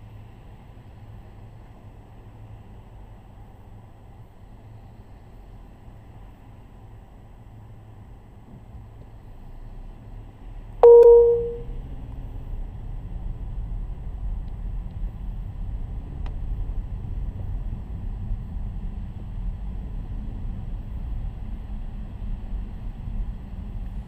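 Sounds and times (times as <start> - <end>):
car horn: 10.8 - 11.7.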